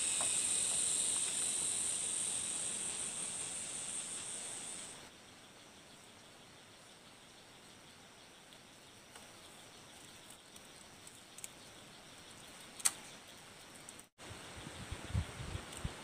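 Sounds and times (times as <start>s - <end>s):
high insect drone: 0.0s - 16.0s.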